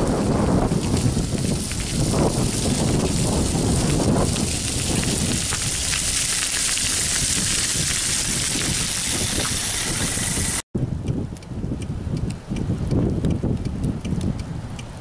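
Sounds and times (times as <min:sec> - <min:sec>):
salt ticking on ice: 0:00.0 - 0:10.6
salt spreader hissing: 0:02.1 - 0:10.6.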